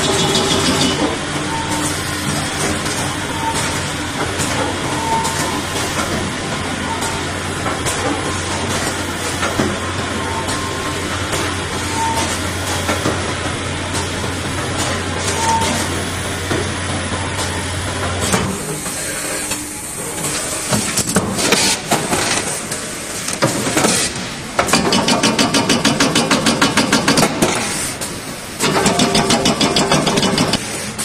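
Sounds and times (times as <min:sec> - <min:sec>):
fast regular machine clatter: 0:00.0 - 0:06.6, 0:10.5 - 0:31.0
machine clicks and knocks: 0:23.3 - 0:27.8, 0:28.6 - 0:30.7.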